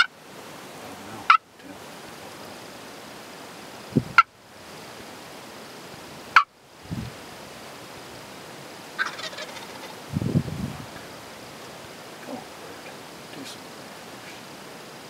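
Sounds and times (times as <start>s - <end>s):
turkey gobbling: 1.2s - 1.8s, 6.3s - 6.5s, 9.0s - 10.0s.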